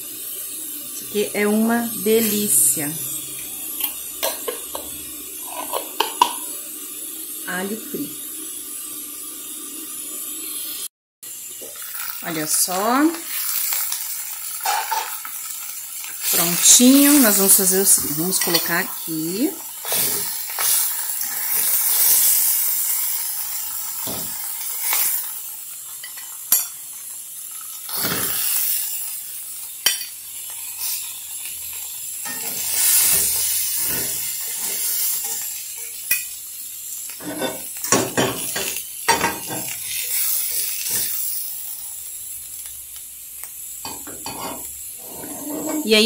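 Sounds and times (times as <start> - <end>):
fat sizzling in a frying pan: 0.0 - 46.0
fork scraping a pan: 5.4 - 6.4, 19.8 - 22.4, 37.2 - 38.0, 44.1 - 46.0.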